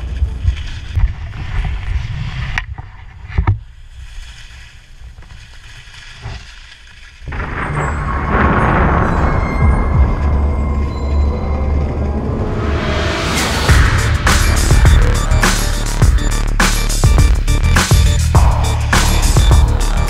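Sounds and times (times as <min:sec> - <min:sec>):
skis scraping over snow: 0:00.0 - 0:07.4.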